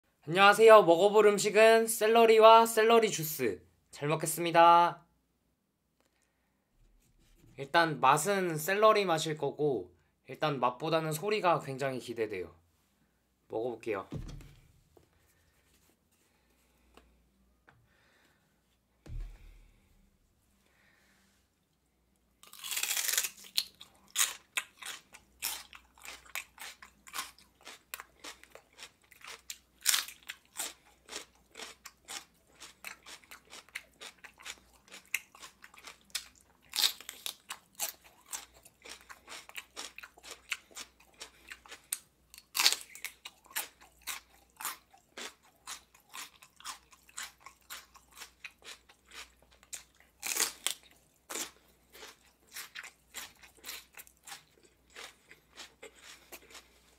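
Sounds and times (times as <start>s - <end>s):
celery crunching: 22.4s - 56.9s.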